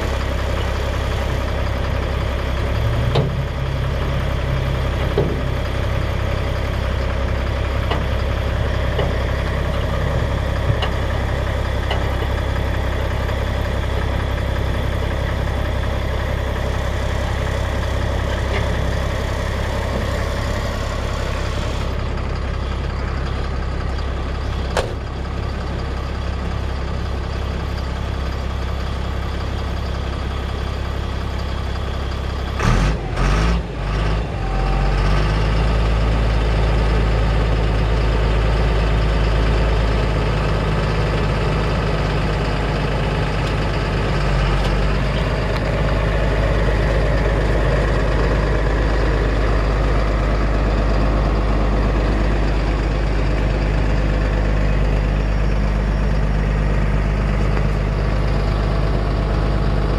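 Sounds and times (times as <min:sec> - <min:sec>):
diesel truck engine idling: 0:00.0 - 0:59.9
clunks: 0:02.6 - 0:14.6, 0:17.1 - 0:26.1, 0:42.2 - 0:49.6.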